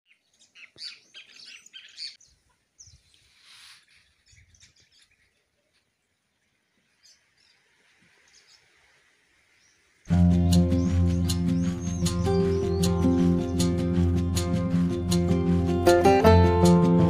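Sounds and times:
small birds chirping: 0.0 - 15.6
short hiss: 3.2 - 4.1.

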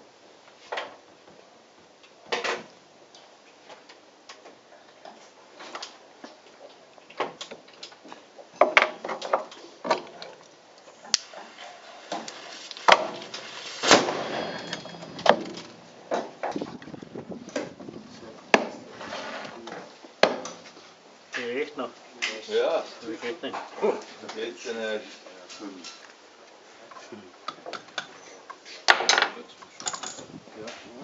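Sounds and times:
sparks fizzing: 11.0 - 15.8
small cannons firing: 12.9 - 15.8.

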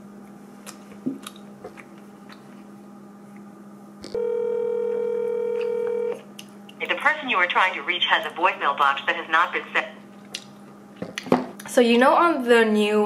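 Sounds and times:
faint room hum: 0.0 - 13.0
telephone ringback tone: 4.2 - 6.2.

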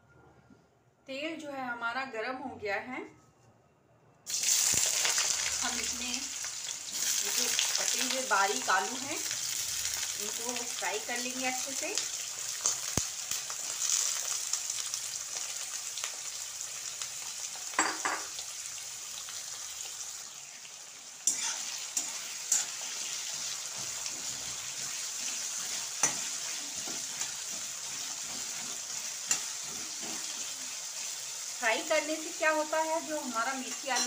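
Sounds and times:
potatoes sizzling in hot oil: 4.3 - 34.0
spatula clinking and scraping pan: 21.2 - 30.6, 33.6 - 34.0.

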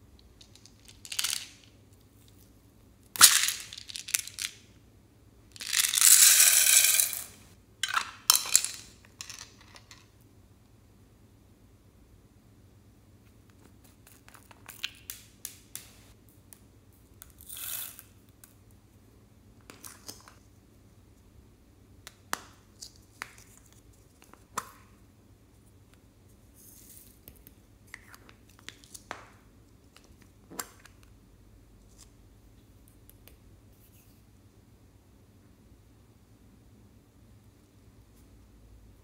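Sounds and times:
beads rustling: 5.6 - 7.4.

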